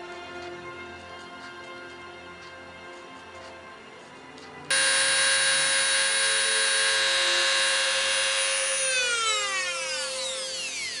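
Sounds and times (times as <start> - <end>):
rotary tool whining: 4.7 - 11.0.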